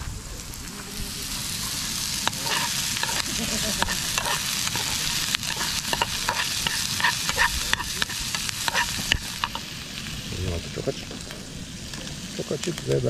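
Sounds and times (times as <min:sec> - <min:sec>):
onions sizzling in oil: 0:00.0 - 0:13.0
metal spoon scraping pan: 0:02.2 - 0:09.7.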